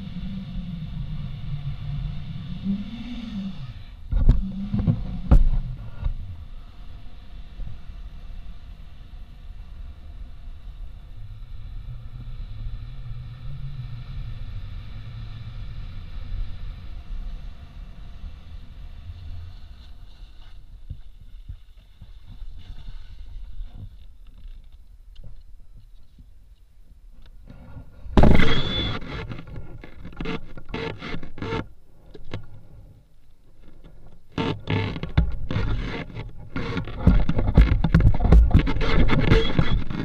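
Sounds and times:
wind rushing over camera: 0.0s - 31.6s, 34.0s - 40.0s
skis sliding on snow: 16.4s - 24.0s.

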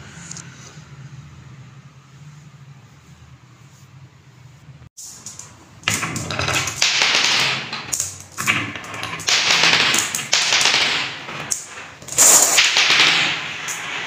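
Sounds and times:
marbles rolling and clicking: 5.0s - 14.0s.

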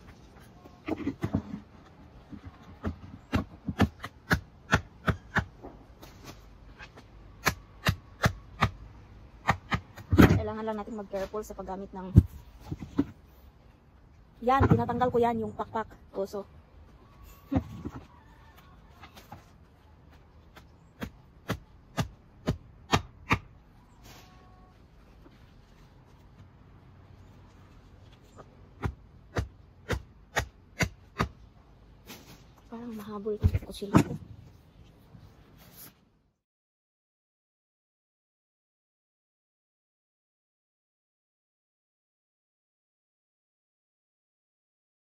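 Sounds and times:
cleaver chopping carcass: 2.8s - 5.6s, 7.4s - 8.8s, 9.4s - 10.4s, 20.5s - 23.5s, 28.8s - 31.4s.

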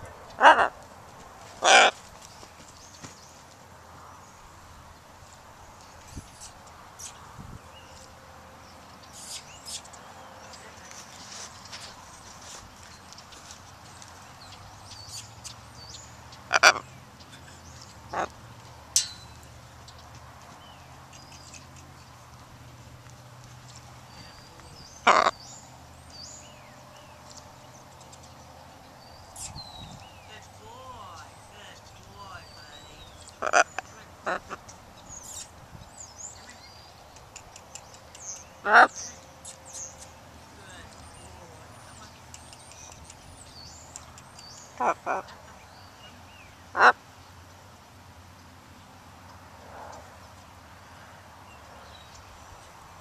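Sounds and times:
macaw squawking: 1.6s - 2.0s, 16.5s - 16.9s, 18.1s - 18.3s, 25.0s - 25.4s, 32.2s - 34.6s
small birds chirping: 1.6s - 53.0s.

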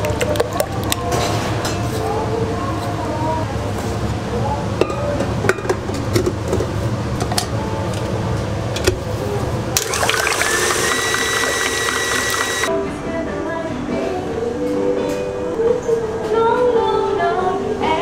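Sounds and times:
stand mixer motor whine: 9.8s - 12.7s
whisk beating liquid in bowl: 9.9s - 12.7s.

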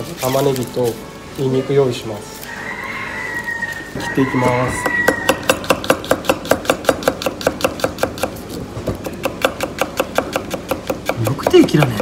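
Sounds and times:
knife tapping on cutting board: 4.8s - 12.0s.

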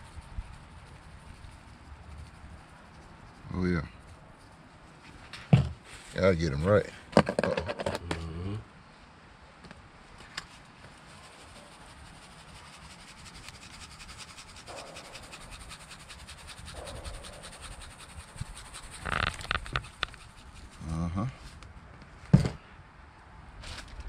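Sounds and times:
pepper shaker rattling: 0.0s - 4.6s, 10.5s - 20.9s.

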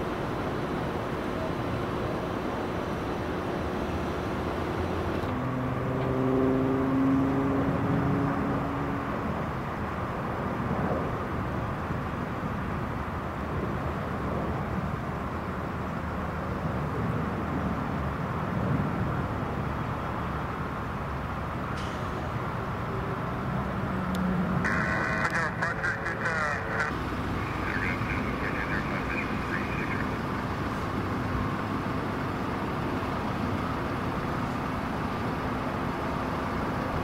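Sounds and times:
jet engines rumbling: 24.2s - 37.0s.

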